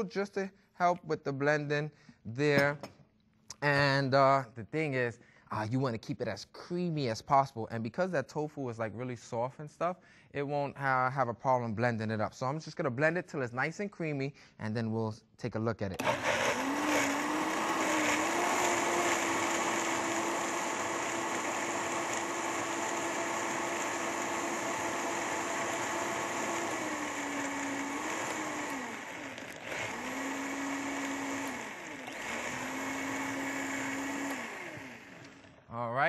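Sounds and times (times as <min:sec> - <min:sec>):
blender motor running: 0:16.0 - 0:35.7.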